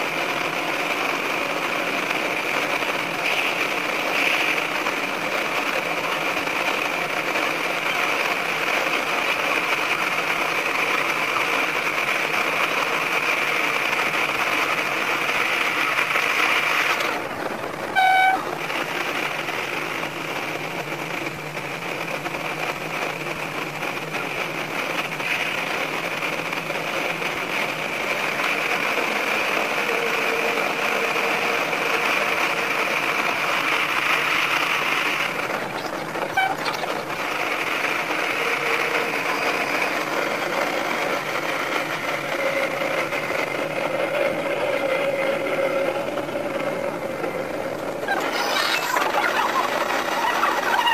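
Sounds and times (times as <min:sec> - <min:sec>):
railcar running in tunnel: 0:00.0 - 0:50.9
train horn toot: 0:17.9 - 0:18.5, 0:36.3 - 0:36.8.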